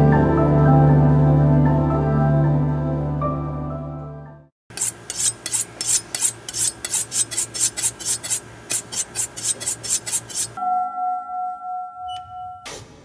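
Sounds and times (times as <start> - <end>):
music: 0.0 - 4.5, 10.6 - 13.0
quick repeated scraping strokes: 4.7 - 10.6.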